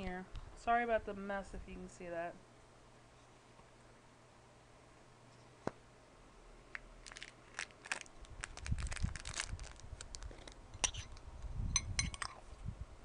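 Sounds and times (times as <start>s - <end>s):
packaging crinkling and tearing: 6.7s - 11.1s.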